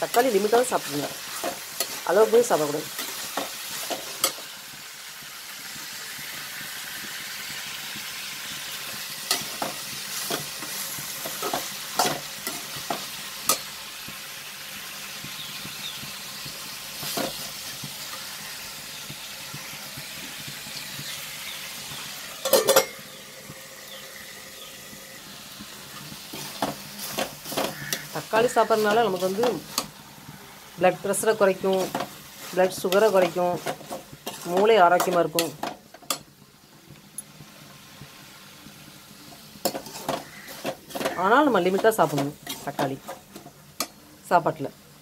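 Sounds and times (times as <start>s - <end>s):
metal spoon scraping pan: 0.0s - 4.5s, 8.9s - 13.7s, 22.4s - 23.0s, 25.9s - 30.0s, 31.1s - 36.2s, 39.6s - 44.0s
onions sizzling in oil: 0.0s - 45.0s.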